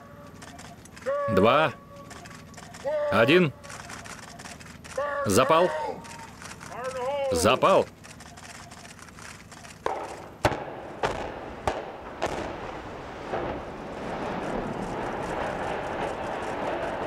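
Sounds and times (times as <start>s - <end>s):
steady rumble of collapsing towers: 8.9s - 17.0s
sharp explosive bangs: 9.8s - 17.0s.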